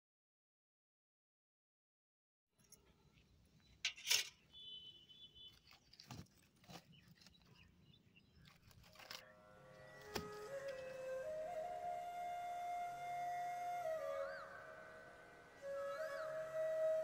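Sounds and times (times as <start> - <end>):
outdoor background noise: 2.6 - 17.0
flute music: 9.3 - 17.0.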